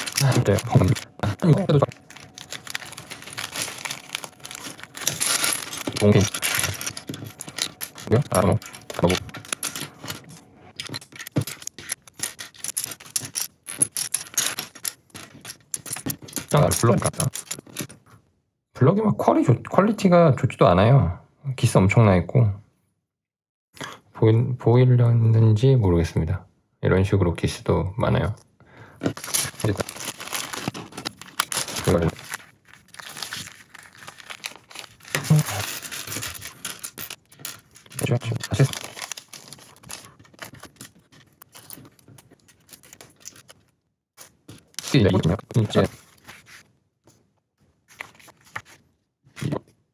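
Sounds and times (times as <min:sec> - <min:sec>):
plastic bags crinkling and tearing: 0:00.0 - 0:10.3, 0:29.0 - 0:41.6
plastic blocks clattering and clicking: 0:00.0 - 0:18.0, 0:29.0 - 0:43.6.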